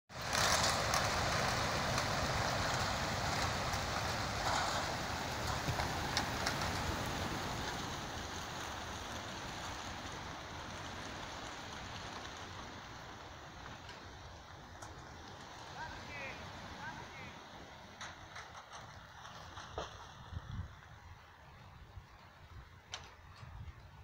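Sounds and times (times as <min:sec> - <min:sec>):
pigeon flock wingbeats whirring: 0:00.1 - 0:17.2.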